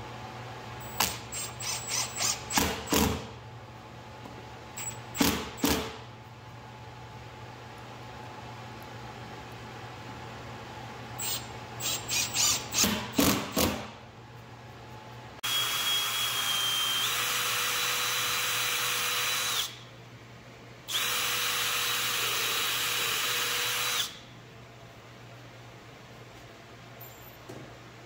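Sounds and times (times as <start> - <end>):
power drill whining: 0.8 - 2.6, 11.2 - 13.1, 15.4 - 19.8, 20.9 - 24.2.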